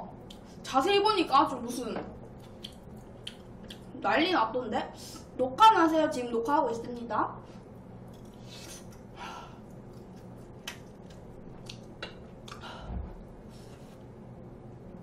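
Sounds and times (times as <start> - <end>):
chewing: 2.4 - 3.9, 8.0 - 12.6.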